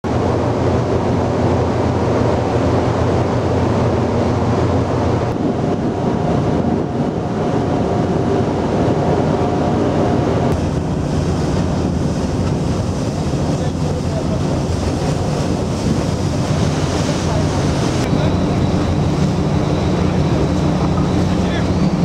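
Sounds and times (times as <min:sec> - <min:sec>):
sea water rushing: 0:00.0 - 0:22.0
wind rumble on microphone: 0:00.0 - 0:22.0
faint steady whine: 0:10.5 - 0:22.0.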